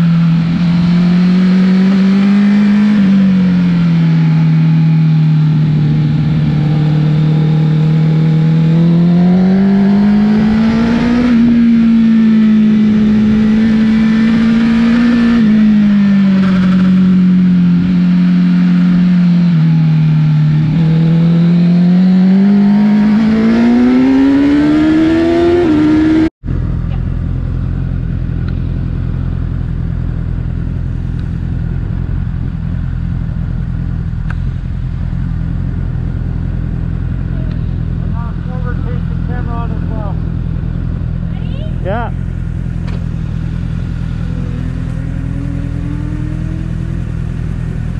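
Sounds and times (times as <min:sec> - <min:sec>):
motorcycle engine revving: 0:00.0 - 0:47.9
steady low rumble: 0:26.4 - 0:47.9.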